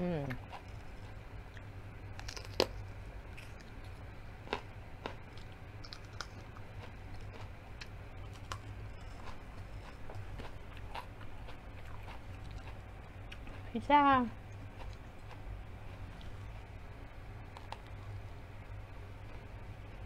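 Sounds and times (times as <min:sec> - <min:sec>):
low steady hum: 0:00.0 - 0:20.0
crisp bites and chewing: 0:00.3 - 0:12.8.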